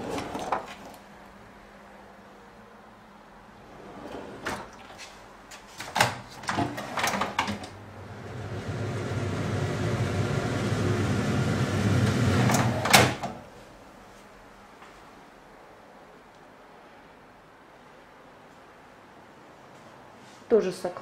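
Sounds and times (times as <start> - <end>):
extractor fan running: 6.8 - 13.6.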